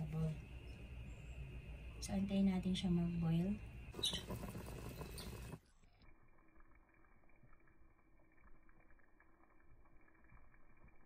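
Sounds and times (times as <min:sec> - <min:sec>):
saucepan bubbling on gas burner: 0:03.7 - 0:11.0
small popping bubbles: 0:03.9 - 0:11.0.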